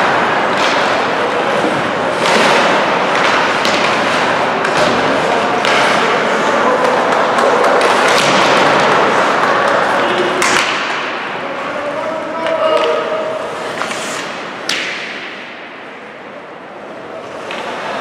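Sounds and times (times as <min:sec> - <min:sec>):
skates on ice: 0:00.0 - 0:15.6
voices: 0:00.5 - 0:14.8
thuds against rink boards: 0:07.8 - 0:09.0.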